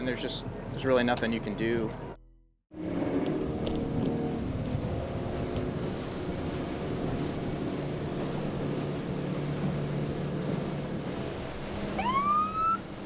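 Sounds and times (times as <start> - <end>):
boat engine running: 0.0 - 13.0
wind noise: 2.8 - 13.0
siren whoop: 11.9 - 12.9.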